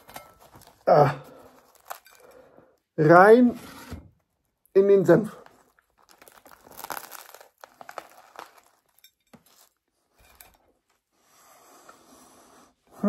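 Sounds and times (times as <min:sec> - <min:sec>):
bread crust crackling: 0:00.0 - 0:02.6, 0:04.3 - 0:11.0.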